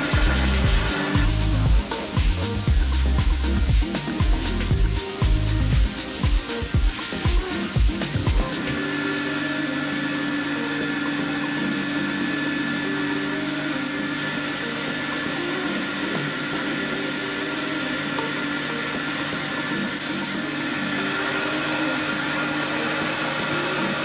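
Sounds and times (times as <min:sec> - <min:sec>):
cordless drill motor whining: 0:08.5 - 0:24.0.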